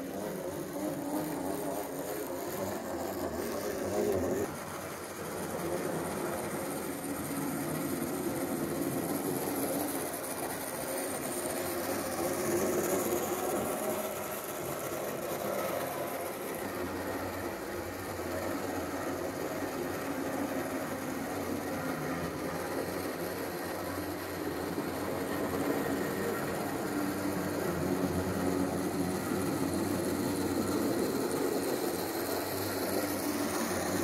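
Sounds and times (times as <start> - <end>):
faint high whine: 0.0 - 34.0
model locomotive motor whirring: 0.0 - 34.0.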